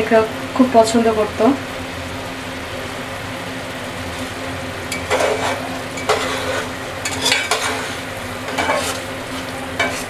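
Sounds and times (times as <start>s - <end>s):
steady sizzle: 0.0s - 10.0s
metal spatula scraping pot: 4.9s - 10.0s.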